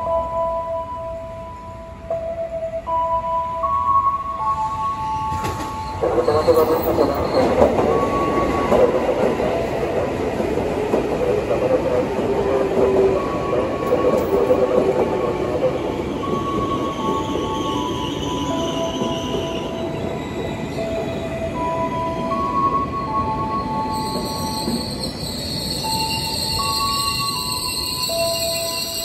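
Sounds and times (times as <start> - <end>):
electric train rumbling: 0.0 - 29.0
high wheel squeal: 23.8 - 29.0.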